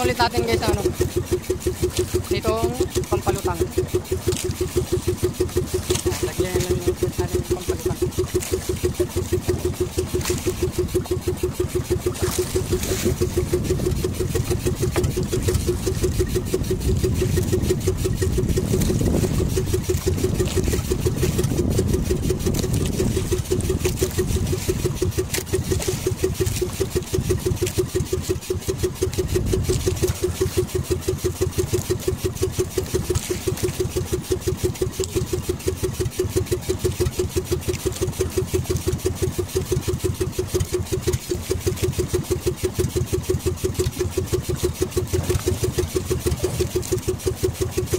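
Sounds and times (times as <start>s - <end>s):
boat engine puttering: 0.0s - 47.9s
wind and water rumble: 0.0s - 47.9s.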